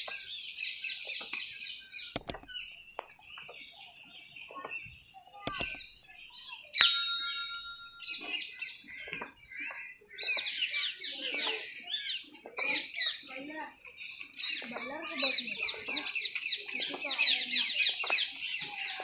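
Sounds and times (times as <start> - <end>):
birds chirping and calling: 0.0 - 19.0
sharp clicks: 2.2 - 3.1, 5.4 - 6.2.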